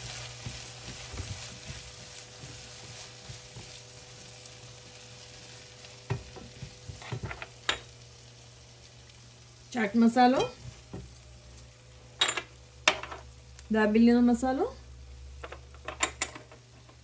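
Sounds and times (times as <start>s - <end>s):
spatula stirring and scraping: 0.0s - 7.6s
vegetables sizzling in a pan: 0.0s - 15.8s.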